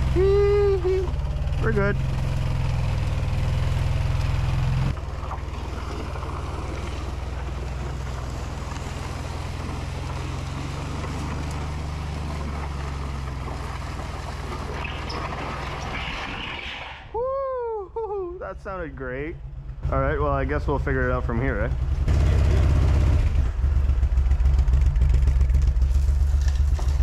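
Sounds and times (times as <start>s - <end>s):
atv engine running: 0.0s - 16.0s, 18.4s - 27.0s
cart rolling over gravel: 4.9s - 16.9s, 25.0s - 27.0s.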